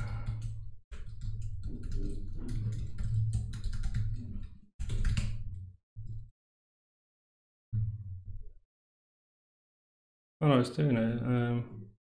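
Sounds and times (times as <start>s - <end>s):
keyboard typing: 0.0s - 5.6s.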